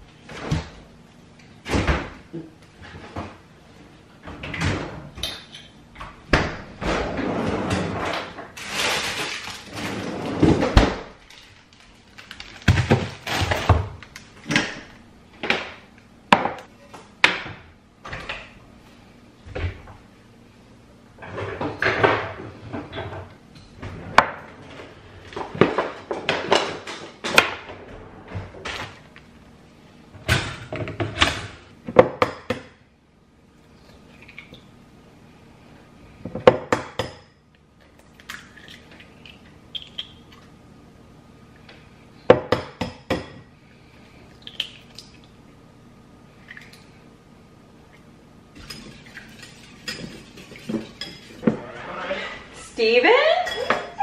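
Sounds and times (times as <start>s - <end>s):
cupboard doors and drawers: 6.0s - 11.2s
dishes and utensils clattering: 48.6s - 52.0s, 53.3s - 54.0s.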